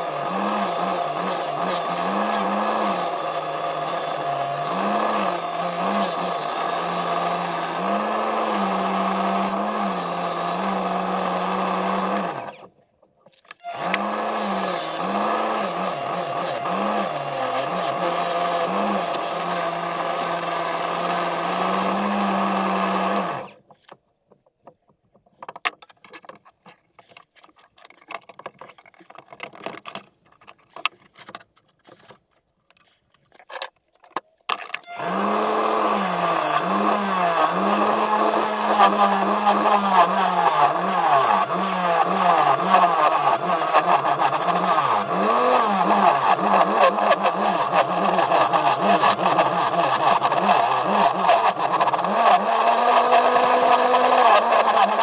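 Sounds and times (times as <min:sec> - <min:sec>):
lathe motor humming: 0:00.0 - 0:12.6, 0:13.7 - 0:23.5, 0:35.0 - 0:55.0
tools clicking and knocking: 0:23.6 - 0:34.9
gouge scraping wood: 0:35.3 - 0:55.0.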